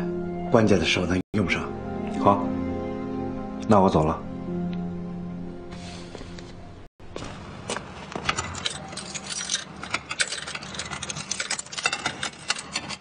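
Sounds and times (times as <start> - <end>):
metal jangling and clinking: 8.2 - 13.0.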